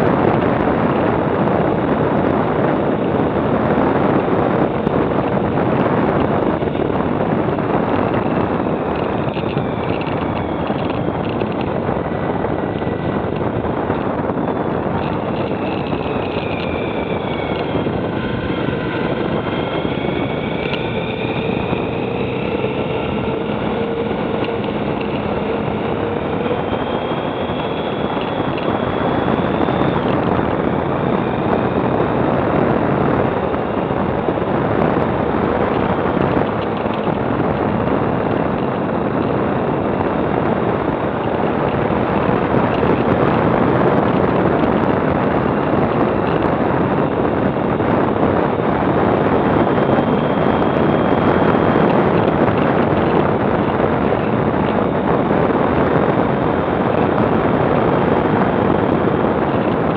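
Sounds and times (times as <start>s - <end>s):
motorcycle engine: 0.0s - 59.9s
wind buffeting microphone: 0.0s - 59.9s.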